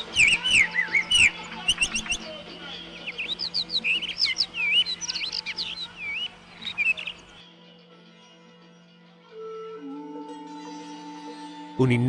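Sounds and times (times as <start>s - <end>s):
bird singing whistled notes: 0.0s - 7.4s.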